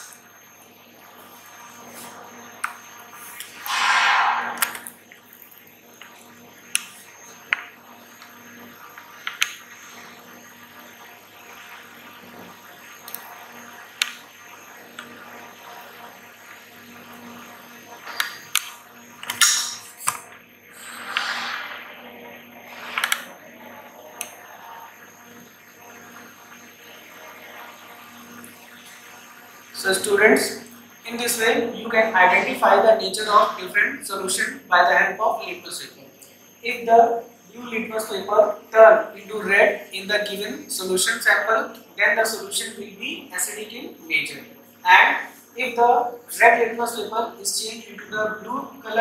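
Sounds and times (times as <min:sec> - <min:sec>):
faint high whine: 0:00.0 - 0:49.0.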